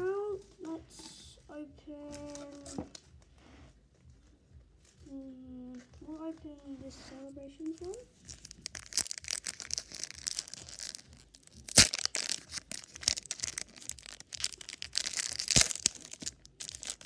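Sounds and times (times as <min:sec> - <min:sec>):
foil wrapper tearing and crinkling: 0:08.2 - 0:17.0.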